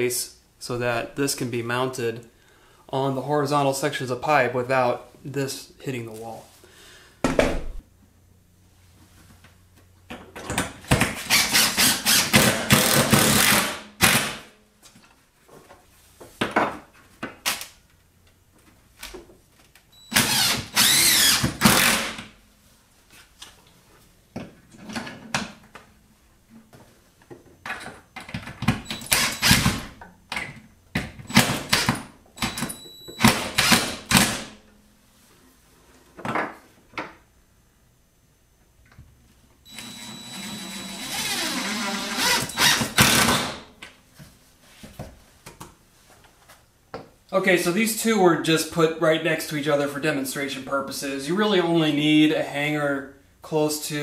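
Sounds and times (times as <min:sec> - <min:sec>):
cordless drill driving screws: 0:11.3 - 0:14.2, 0:20.1 - 0:22.2, 0:28.9 - 0:29.8, 0:39.7 - 0:43.6.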